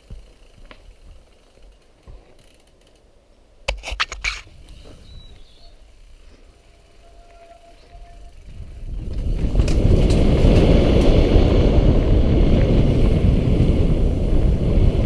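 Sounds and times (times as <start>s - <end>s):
bike tyres rumbling on dirt: 0.0s - 2.9s, 3.8s - 15.0s
bike clattering over rough ground: 0.0s - 3.1s, 3.7s - 12.0s
bike clicking and rattling: 0.0s - 15.0s.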